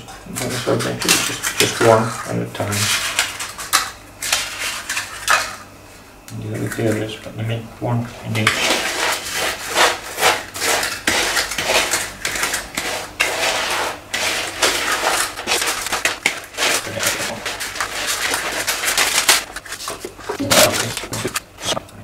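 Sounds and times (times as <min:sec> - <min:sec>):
utensil scraping a bowl: 0:00.0 - 0:05.5, 0:08.2 - 0:21.7
cereal crackling: 0:08.3 - 0:21.3.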